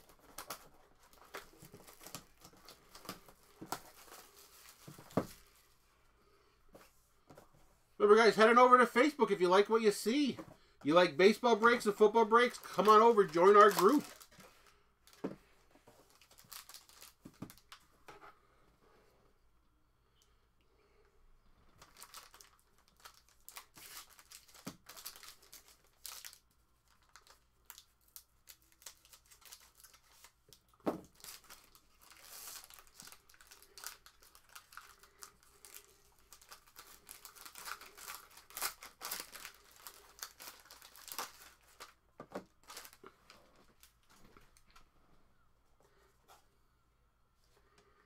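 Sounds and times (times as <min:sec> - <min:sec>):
foil wrapper crinkling: 0:11.2 - 0:14.6, 0:16.1 - 0:17.8, 0:21.8 - 0:42.0, 0:42.6 - 0:43.1.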